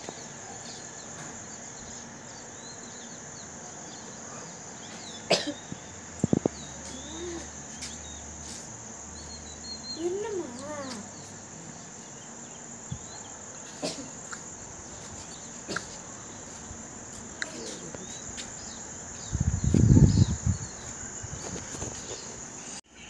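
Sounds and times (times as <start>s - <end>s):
crickets chirring: 0.0s - 23.0s
bird chirps: 0.1s - 11.4s
wind buffeting microphone: 6.2s - 6.8s, 18.1s - 22.5s.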